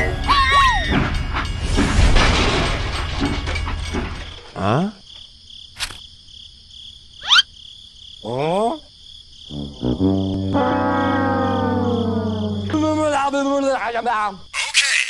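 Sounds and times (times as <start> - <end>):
toy train crashing: 0.8 - 4.6
sharp click: 5.8 - 6.0.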